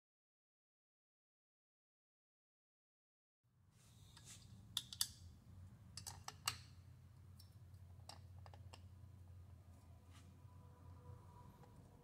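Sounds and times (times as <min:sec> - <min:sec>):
steady low hum: 0:03.6 - 0:12.0.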